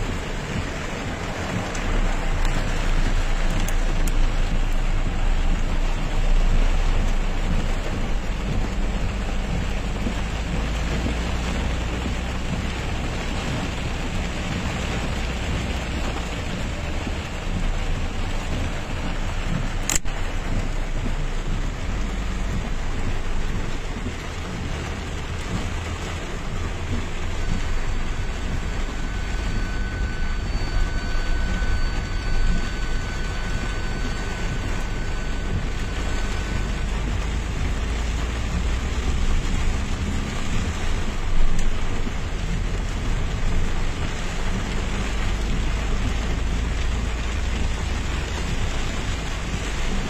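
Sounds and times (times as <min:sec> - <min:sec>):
car driving on wet road: 0:00.0 - 0:50.0
heavy rain drumming on car: 0:00.0 - 0:50.0
sharp click: 0:19.8 - 0:20.1.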